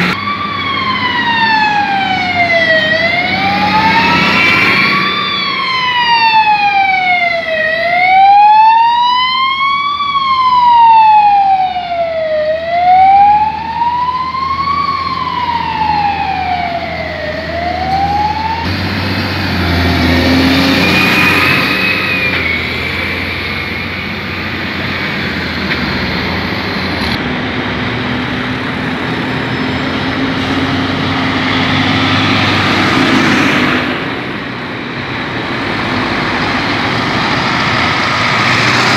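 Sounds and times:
siren wailing: 0.0s - 26.8s
tractor engines driving past: 0.0s - 38.9s.

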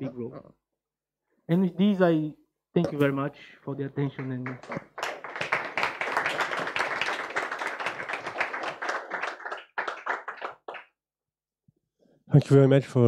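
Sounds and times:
audience applauding: 4.1s - 10.9s.

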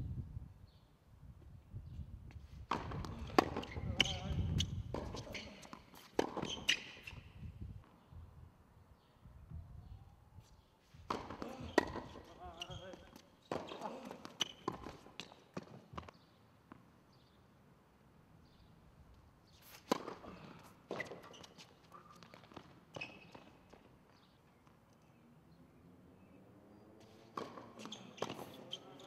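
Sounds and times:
tennis racket hitting ball: 2.7s - 4.2s, 4.9s - 7.1s, 11.1s - 12.3s, 27.2s - 28.7s
tennis ball bouncing on hard court: 2.7s - 7.3s, 11.1s - 16.9s, 19.8s - 20.3s, 27.2s - 29.0s.

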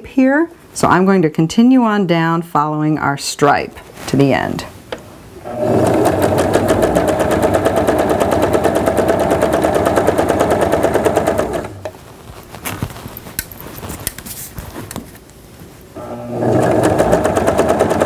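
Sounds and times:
sewing machine stitching: 5.4s - 11.9s, 16.0s - 18.0s.

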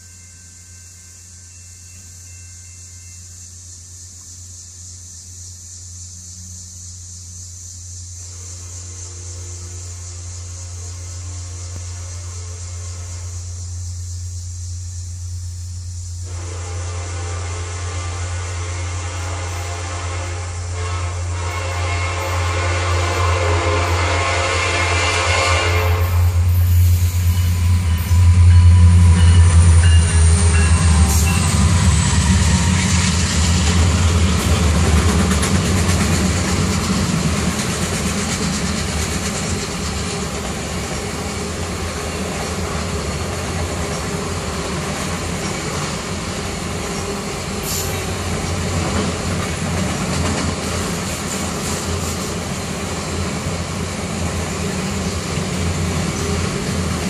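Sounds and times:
diesel locomotive engine drone: 0.0s - 57.0s
freight cars rolling: 26.4s - 57.0s.

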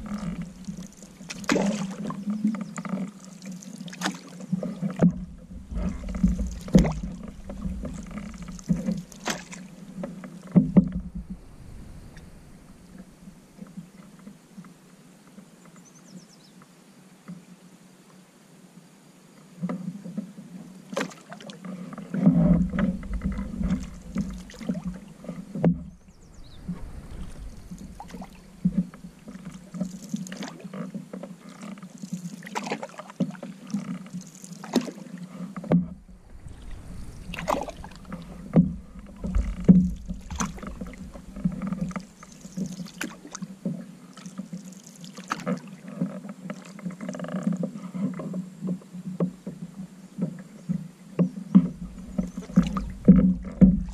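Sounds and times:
deep rumble: 0.0s - 1.0s, 5.0s - 10.0s, 10.6s - 13.6s, 22.6s - 29.7s, 35.8s - 42.5s, 51.6s - 53.9s
paddle strokes splashing: 0.0s - 14.4s, 20.7s - 53.9s
water lapping against hull: 0.0s - 14.6s, 19.7s - 53.9s
knocks on canoe: 4.6s - 11.8s, 22.2s - 31.3s, 35.6s - 43.9s, 48.7s - 53.9s.

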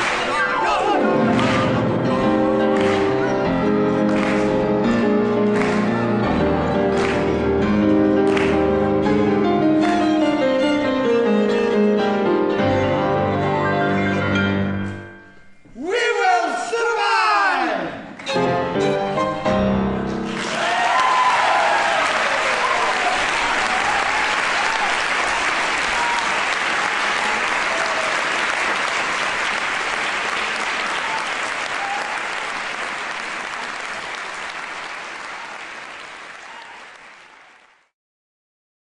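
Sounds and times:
audience applause: 0.0s - 10.0s, 20.2s - 37.9s
violin and piano chords: 0.6s - 15.0s, 18.2s - 20.3s.

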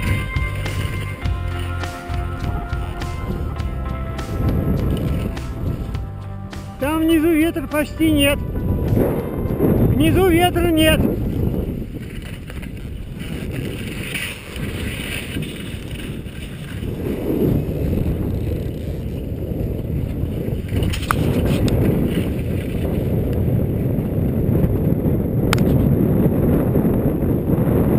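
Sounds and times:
skis running over snow: 0.0s - 24.9s
wind buffeting microphone: 0.0s - 27.9s.

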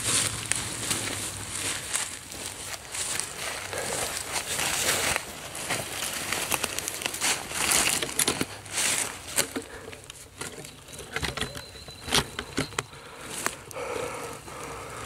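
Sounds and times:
dry leaves rustling and crunching: 0.0s - 11.5s.

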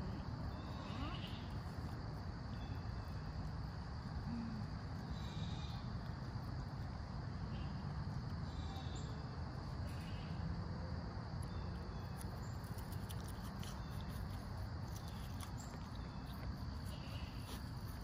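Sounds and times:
insect chorus: 0.0s - 18.0s
goat cropping grass: 12.2s - 18.0s.

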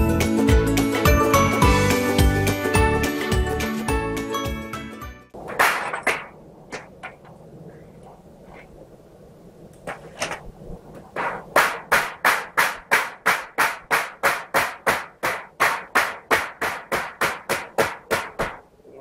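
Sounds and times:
hammer knocking on wooden block: 11.2s - 18.6s.

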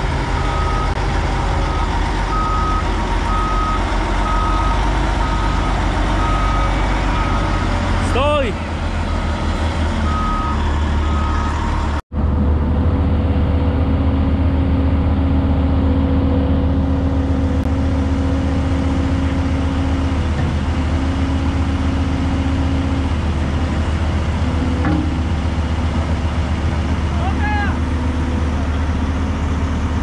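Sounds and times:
heavy diesel machinery running: 0.0s - 30.0s
alarm beeping: 10.0s - 11.7s.

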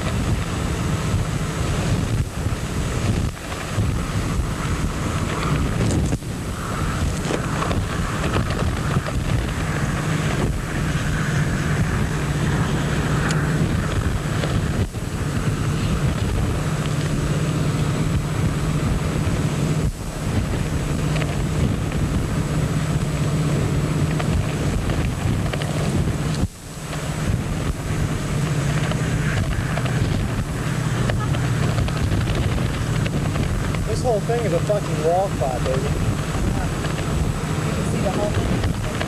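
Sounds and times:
low hum: 0.0s - 39.0s
wind buffeting microphone: 0.0s - 39.0s.

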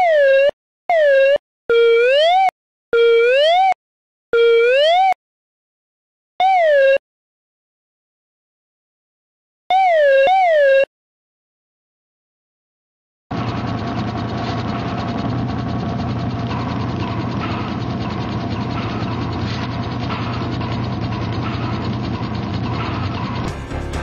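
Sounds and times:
rapid mechanical clicking: 13.3s - 23.5s
low hum: 13.4s - 24.0s.

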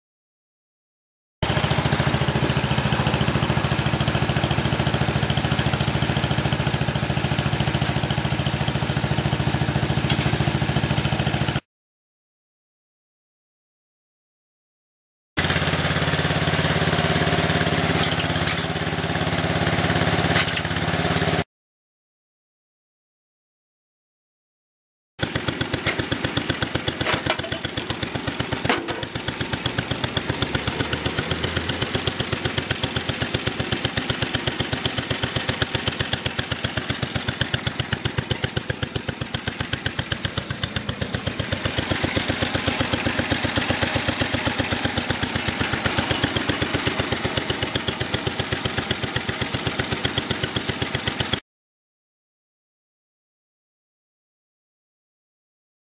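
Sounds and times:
single-cylinder engine running: 1.4s - 11.6s, 15.4s - 21.4s, 25.2s - 51.4s.

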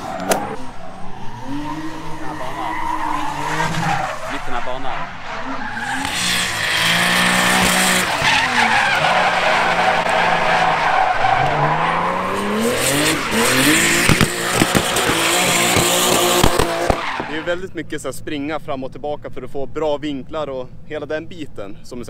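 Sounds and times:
car engine revving: 0.0s - 17.5s
tyres squealing: 0.0s - 17.5s
sharp bangs: 12.3s - 17.4s.

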